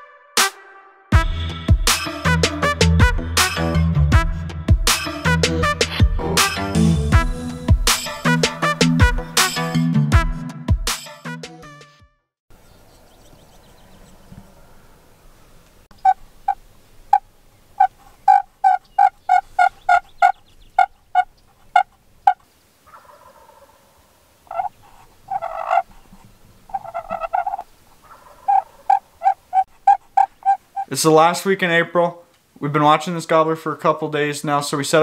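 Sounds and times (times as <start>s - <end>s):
rough turkey calls: 12.6s - 31.0s
turkeys yelping: 13.2s - 31.0s.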